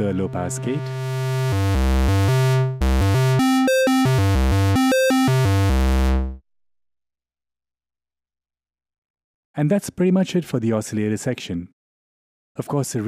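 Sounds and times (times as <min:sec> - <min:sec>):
buzzy synth notes: 0:00.0 - 0:06.4.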